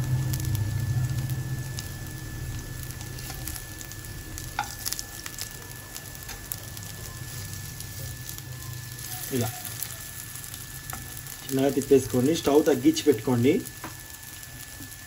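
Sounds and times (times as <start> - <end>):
patties sizzling in pan: 0.0 - 15.0.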